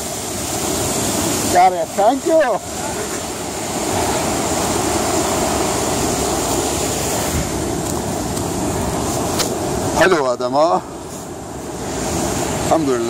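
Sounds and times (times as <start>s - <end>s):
fast-flowing river rushing: 0.0s - 13.0s.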